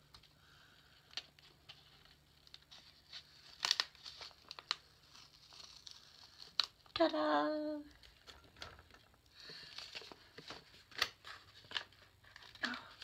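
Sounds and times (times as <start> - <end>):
tape peeling off paper: 1.7 - 7.0.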